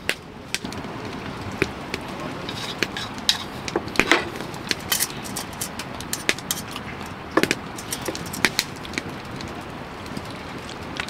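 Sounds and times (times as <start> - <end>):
steady background hiss: 0.0 - 11.0
metal spoon scraping a pot: 2.4 - 6.8.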